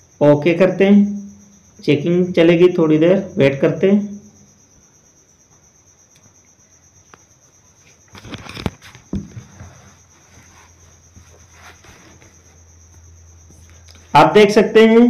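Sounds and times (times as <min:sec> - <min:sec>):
low background hiss: 0:00.0 - 0:08.1
faint high-pitched whine: 0:00.0 - 0:15.0
knocks and rustling: 0:07.8 - 0:13.6.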